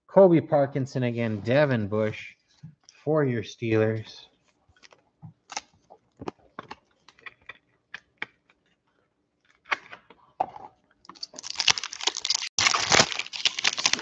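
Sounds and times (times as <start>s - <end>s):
foil wrapper crinkling: 11.1s - 14.0s.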